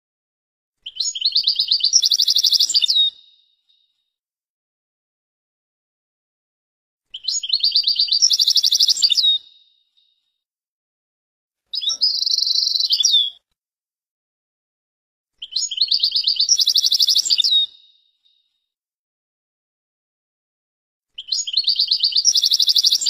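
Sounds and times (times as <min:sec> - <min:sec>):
goldfinch singing: 0:00.8 - 0:03.4, 0:07.1 - 0:09.7, 0:11.7 - 0:13.4, 0:15.4 - 0:18.0, 0:21.2 - 0:23.0.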